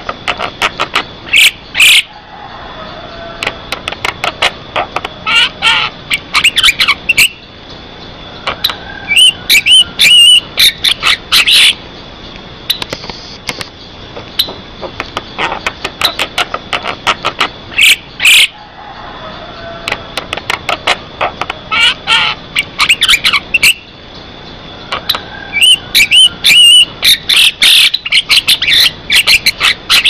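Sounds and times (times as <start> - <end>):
loud harsh bird calls: 0.0 - 11.9, 13.8 - 30.0
myna clicks and whistles: 12.3 - 16.3.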